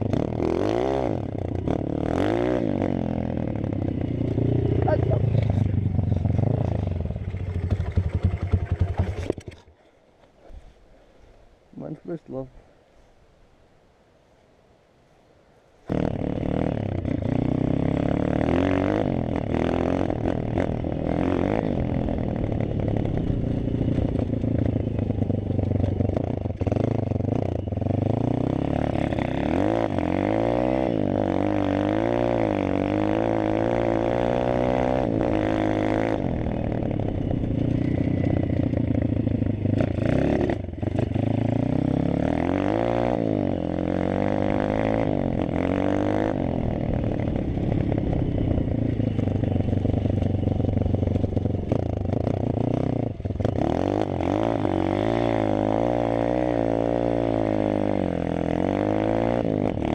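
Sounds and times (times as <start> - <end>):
motorbike engine revving: 0.0 - 9.6, 15.9 - 59.9.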